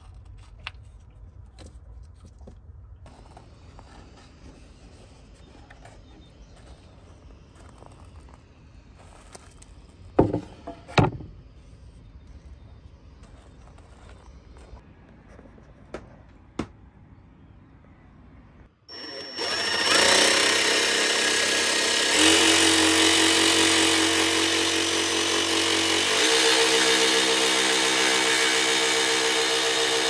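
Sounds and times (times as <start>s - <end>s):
jigsaw cutting plywood: 18.9s - 30.0s.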